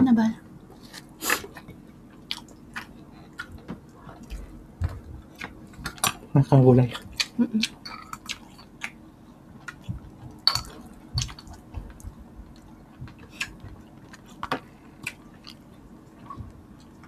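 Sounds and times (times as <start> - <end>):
people chewing and eating: 0.7 - 17.0.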